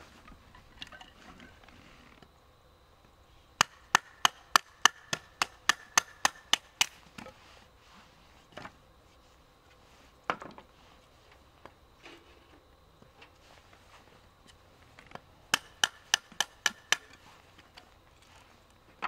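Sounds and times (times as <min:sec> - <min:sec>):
hatchet splitting wood: 0:03.6 - 0:07.0, 0:15.5 - 0:17.2.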